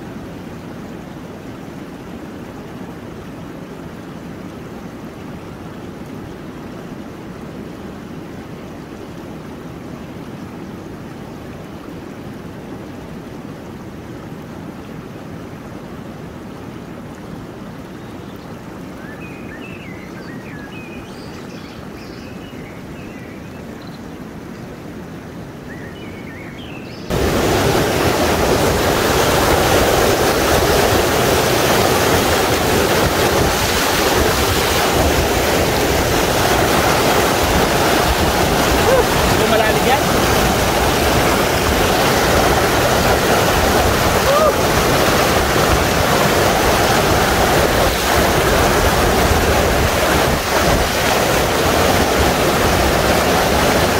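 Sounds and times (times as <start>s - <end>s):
river water rushing over rocks: 24.1s - 53.9s.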